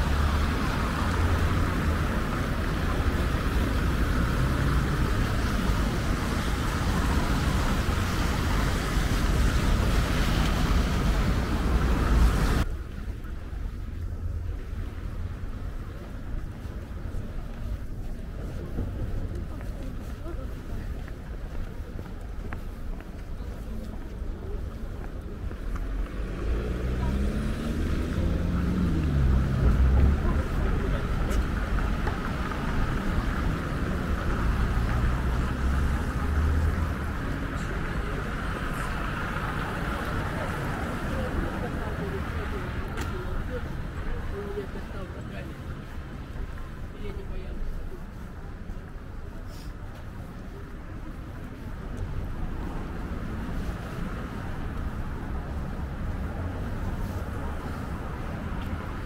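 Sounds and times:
cars passing: 0:00.0 - 0:59.0
low steady traffic rumble: 0:00.0 - 0:59.0
vehicle passing close by: 0:26.1 - 0:37.2.

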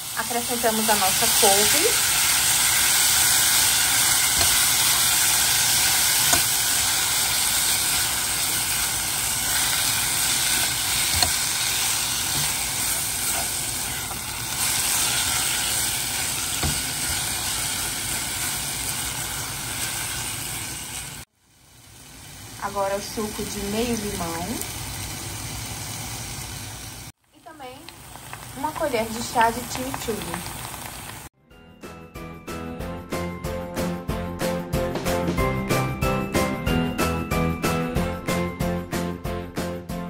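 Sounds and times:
greens sizzling in oil: 0:00.0 - 0:31.3.

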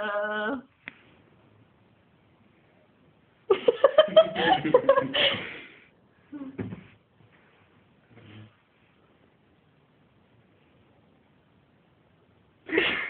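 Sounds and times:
loud human laughter: 0:03.5 - 0:05.6.

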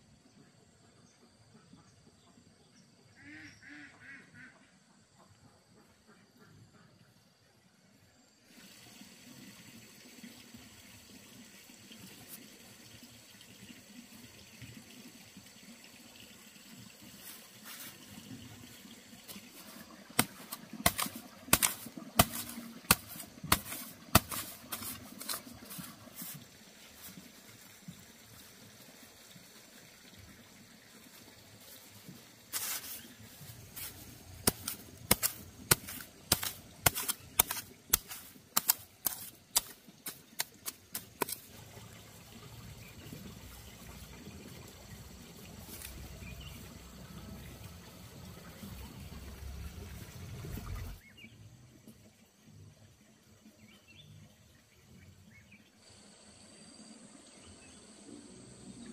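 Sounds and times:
straw rustling under hands: 0:17.2 - 0:18.2, 0:19.2 - 0:27.3, 0:31.6 - 0:41.6
machete chopping into soil: 0:19.3 - 0:26.4, 0:32.5 - 0:41.5.

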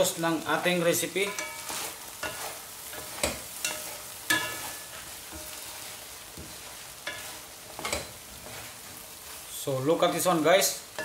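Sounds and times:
vegetables sizzling in a wok: 0:00.0 - 0:11.0
spatula knocking and scraping pan: 0:01.2 - 0:09.4.

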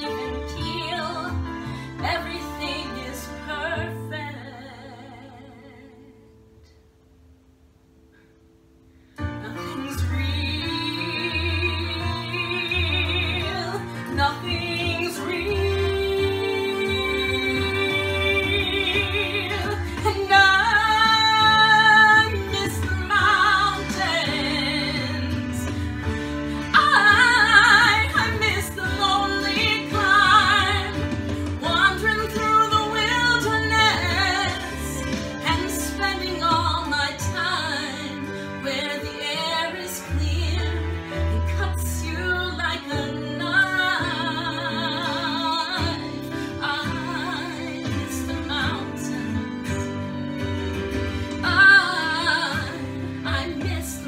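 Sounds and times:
woman singing ballad: 0:00.0 - 0:06.3, 0:09.2 - 0:54.0
instrumental accompaniment: 0:09.2 - 0:54.0.

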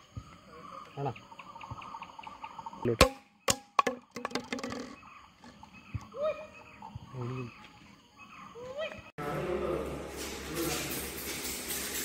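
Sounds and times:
insects chirring: 0:00.0 - 0:09.1
sharp knocks and clattering: 0:03.0 - 0:06.0.

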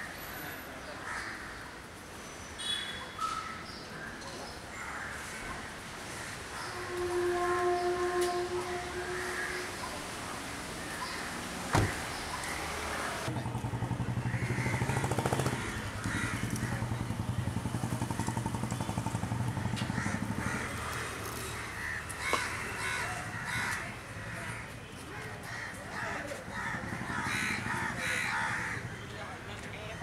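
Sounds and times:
street background noise: 0:00.0 - 0:30.0
crows cawing: 0:01.0 - 0:01.6, 0:04.8 - 0:07.1, 0:14.1 - 0:17.1, 0:19.5 - 0:24.7, 0:25.4 - 0:29.0
vehicle engine humming: 0:06.7 - 0:23.4.

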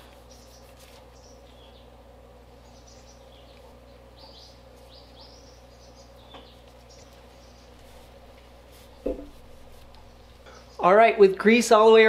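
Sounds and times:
workshop background hum: 0:00.0 - 0:12.0
brief thud: 0:09.0 - 0:09.4.

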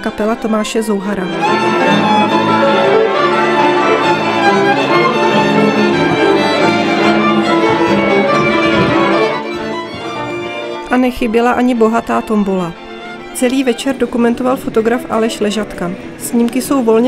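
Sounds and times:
violins playing folk tune: 0:00.0 - 0:17.0
cimbalom: 0:01.3 - 0:10.9
double bass: 0:02.2 - 0:10.4.

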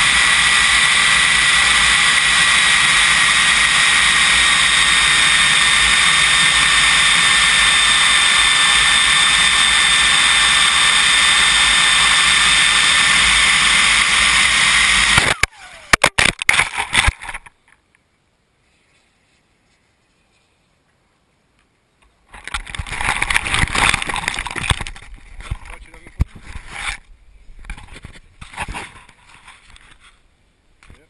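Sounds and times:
model jet turbine engine whine: 0:00.0 - 0:16.1
rushing air: 0:00.0 - 0:17.2.

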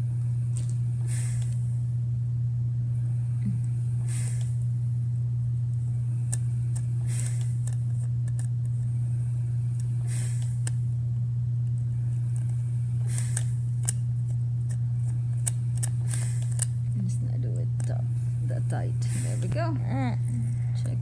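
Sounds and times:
low electrical hum: 0:00.0 - 0:21.0
screwdriver scratching and clicking: 0:06.3 - 0:08.8.

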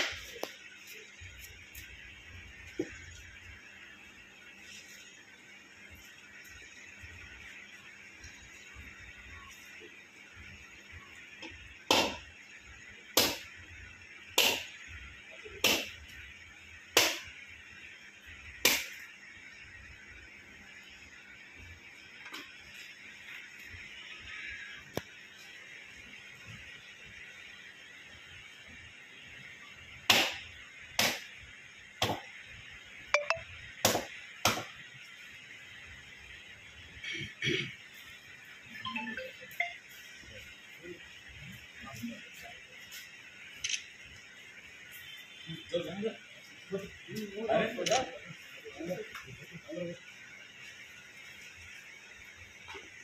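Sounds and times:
sharp knocks on hard object: 0:11.9 - 0:12.2, 0:32.0 - 0:32.2, 0:33.8 - 0:34.7
sharp striking blows: 0:11.9 - 0:12.2, 0:14.4 - 0:14.7, 0:15.6 - 0:16.0, 0:30.1 - 0:30.4, 0:31.0 - 0:31.3, 0:33.2 - 0:34.7.

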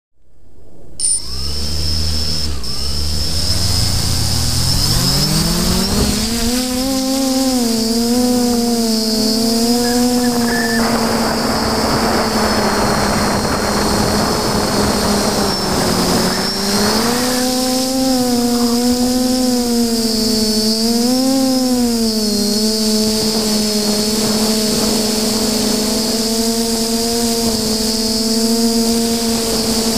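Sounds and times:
wind noise: 0:00.3 - 0:29.9
drone motors humming: 0:00.6 - 0:29.9
thin high whine: 0:00.6 - 0:29.9.

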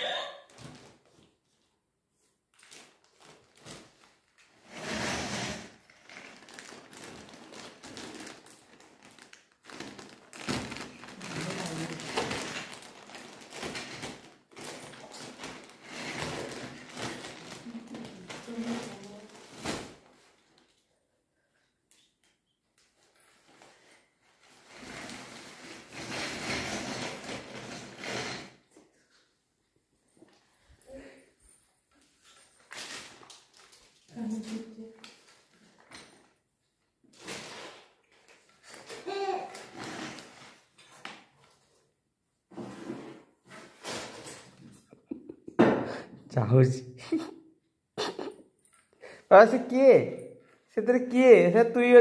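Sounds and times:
plastic wrapping crinkling: 0:02.5 - 0:04.6, 0:05.9 - 0:20.8
plastic packaging rustling: 0:02.5 - 0:04.8, 0:05.8 - 0:20.8.

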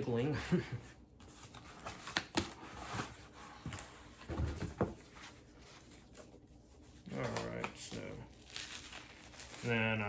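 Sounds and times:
cardboard scraping and rustling: 0:01.2 - 0:06.3.

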